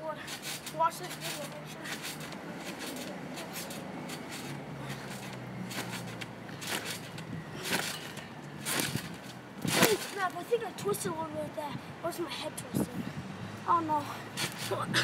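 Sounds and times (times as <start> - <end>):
feet thumping on trampoline: 0.2 - 10.5, 14.3 - 15.0.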